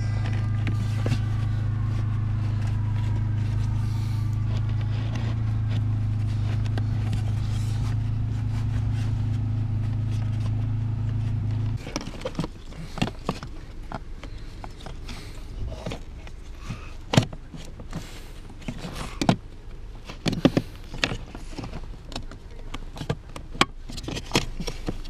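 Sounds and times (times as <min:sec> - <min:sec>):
low motor hum: 0:00.0 - 0:25.0
plastic clicks and scrapes: 0:11.8 - 0:25.0.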